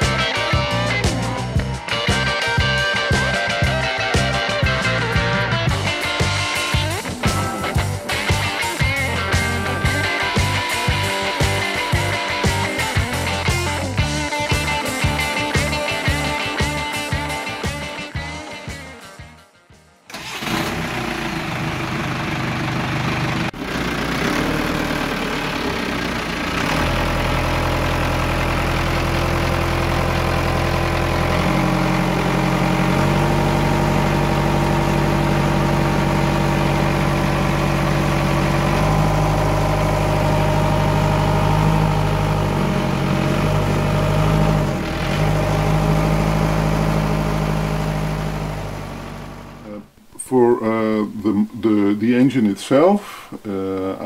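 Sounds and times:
marine diesel engine running: 0:00.0 - 0:17.9, 0:20.1 - 0:49.9.

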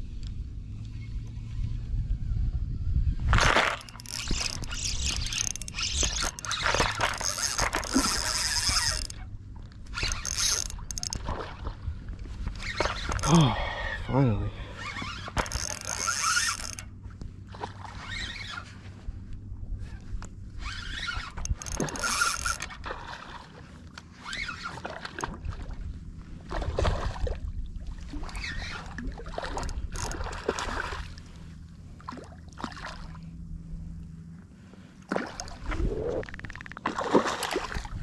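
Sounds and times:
low steady hum: 0:00.0 - 0:38.0
fish splashing in shallow water: 0:03.3 - 0:09.3, 0:09.9 - 0:13.8, 0:20.8 - 0:33.3, 0:35.0 - 0:38.0.

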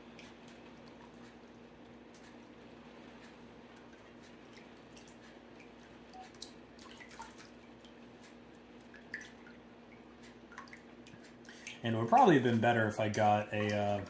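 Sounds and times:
steady low hum: 0:00.0 - 0:14.0
honey dripping into water: 0:08.8 - 0:14.0.

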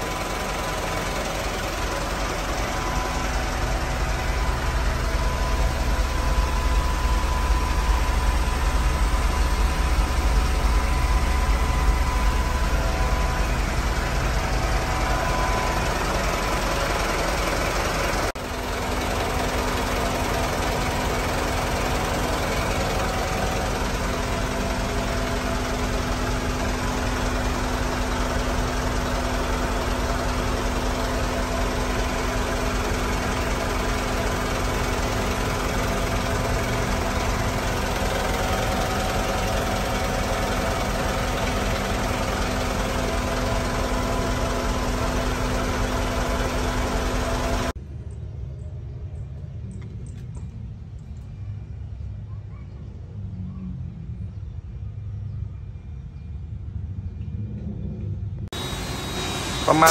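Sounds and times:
diesel engine idling: 0:00.0 - 0:47.8, 0:58.4 - 0:59.9
low hum: 0:00.0 - 0:52.3, 0:53.0 - 0:59.9
air conditioning blowing: 0:58.5 - 0:59.9.

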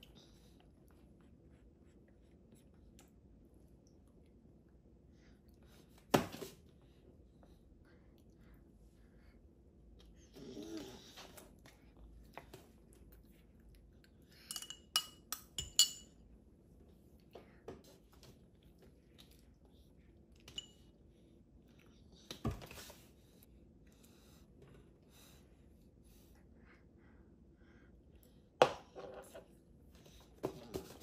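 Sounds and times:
cutlery clinking on glass and plate: 0:14.5 - 0:16.2.

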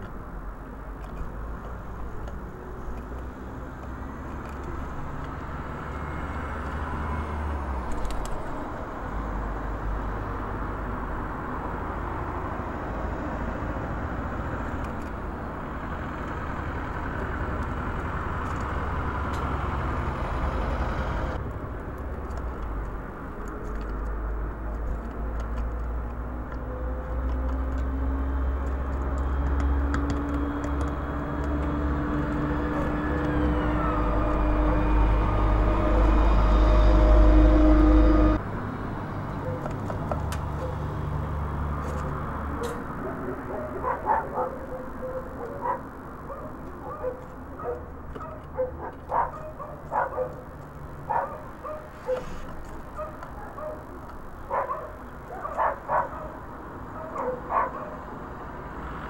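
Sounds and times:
road traffic rumble: 0:00.0 - 0:59.0
vehicle engine rising in pitch: 0:03.4 - 0:14.8, 0:15.4 - 0:21.4, 0:26.6 - 0:39.6.

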